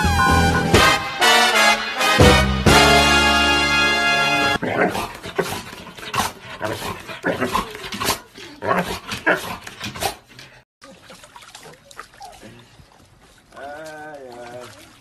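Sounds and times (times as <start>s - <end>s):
dog barking and grumbling: 4.4s - 10.3s
water sloshing in a tub: 10.8s - 15.0s.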